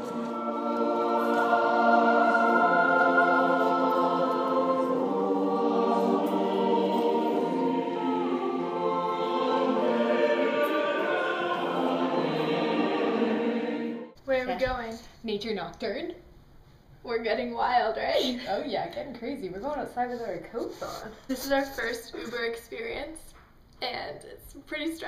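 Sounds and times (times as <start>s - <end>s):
choir singing sustained chords: 0.0s - 14.2s.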